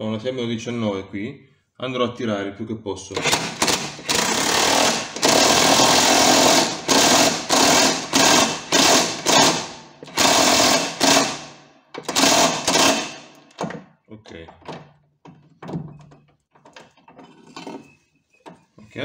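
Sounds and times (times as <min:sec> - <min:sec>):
pneumatic impact wrench hammering: 0:03.2 - 0:13.9.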